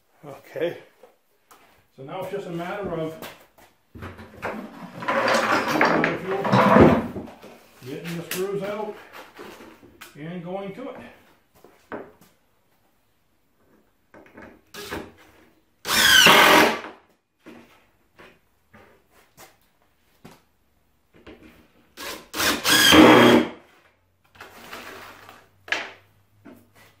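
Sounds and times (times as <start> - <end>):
cordless drill driving screws: 15.8 - 16.8, 22.0 - 23.5.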